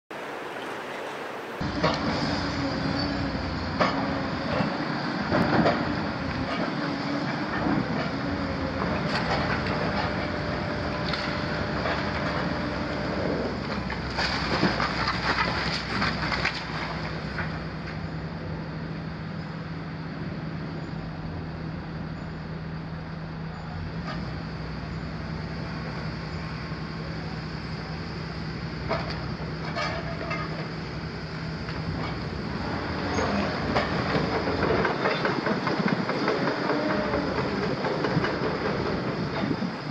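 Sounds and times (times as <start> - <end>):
excavator engine running: 1.6 - 39.9
masonry and debris crashing: 13.7 - 17.4.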